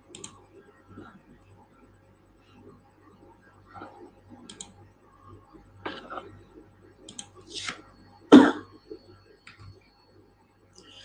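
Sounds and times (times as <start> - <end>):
computer mouse clicks: 0.1 - 0.4, 3.8 - 4.8, 7.1 - 7.4.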